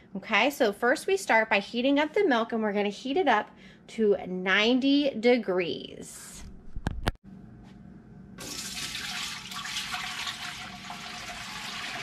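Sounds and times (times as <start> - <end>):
milk pouring into a metal pot: 8.4 - 12.0.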